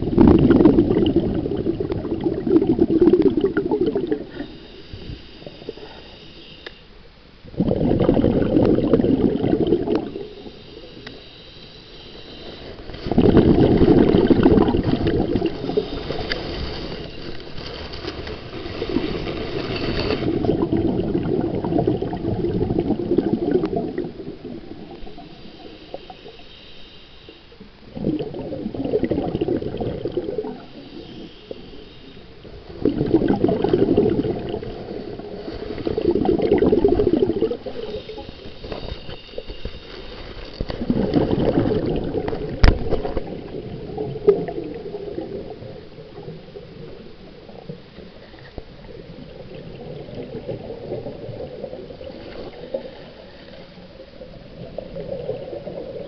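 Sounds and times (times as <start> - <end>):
regulator inhale hiss: 4.2 - 6.9, 10.1 - 13.0, 15.6 - 17.5, 25.1 - 27.7, 37.6 - 40.4.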